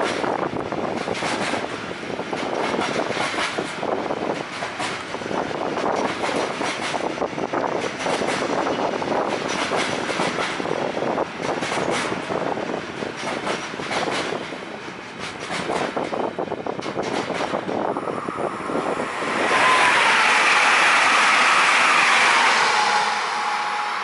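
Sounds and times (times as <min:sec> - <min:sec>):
freight train wheels knocking: 0:00.0 - 0:17.9
train rushing with thin whine: 0:00.0 - 0:24.0.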